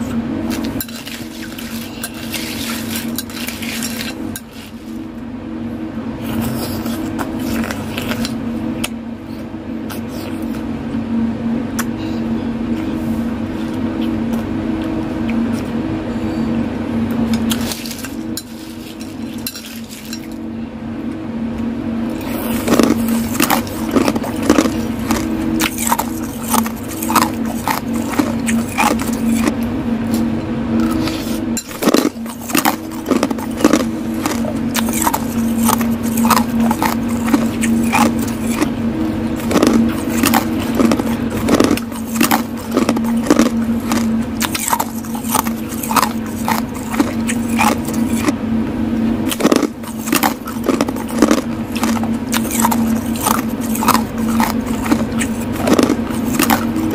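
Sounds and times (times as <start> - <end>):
steady low hum: 0.0 - 56.9
ice cubes crunched by teeth: 22.6 - 29.6, 31.7 - 38.7, 39.4 - 48.4, 49.3 - 56.8.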